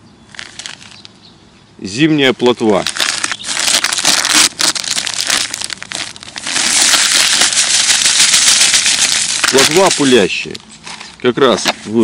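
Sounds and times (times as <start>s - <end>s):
plastic packet crinkling: 0.3s - 1.1s, 2.6s - 10.6s
dry mix pouring: 2.7s - 10.6s.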